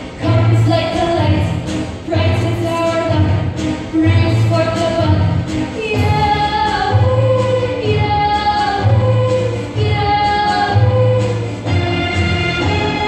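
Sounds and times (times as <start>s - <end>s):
instrumental accompaniment: 0.0s - 13.0s
group of voices singing: 5.8s - 11.6s.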